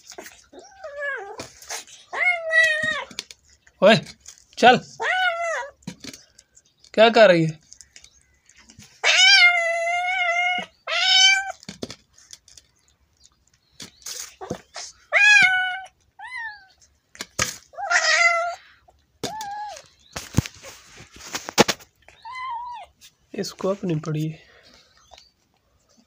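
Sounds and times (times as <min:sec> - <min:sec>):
cat yowling: 0:00.5 - 0:03.2, 0:05.0 - 0:05.8, 0:09.0 - 0:11.6, 0:15.1 - 0:16.8, 0:17.7 - 0:19.8, 0:22.2 - 0:22.9.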